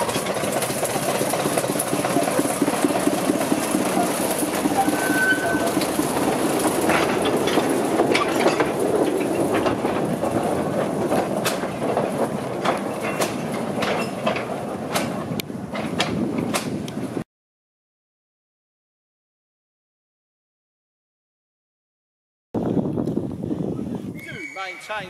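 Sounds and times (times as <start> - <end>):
locomotive engine: 0.0 - 17.2
wagons clacking on track: 0.0 - 17.2.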